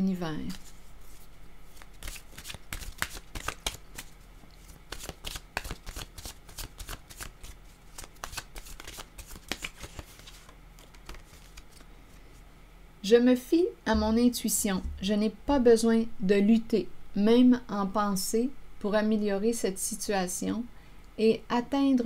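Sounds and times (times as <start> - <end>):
cards being shuffled: 0.4 - 11.9.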